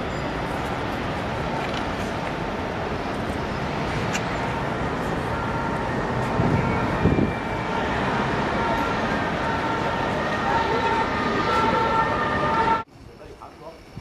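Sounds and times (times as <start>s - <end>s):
distant city traffic hum: 0.0s - 14.0s
wind on microphone: 6.2s - 7.6s.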